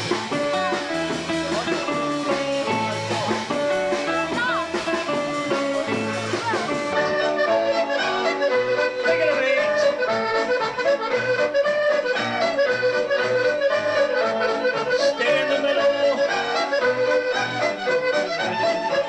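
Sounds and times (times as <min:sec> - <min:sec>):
dance music with steady beat: 0:00.0 - 0:07.1.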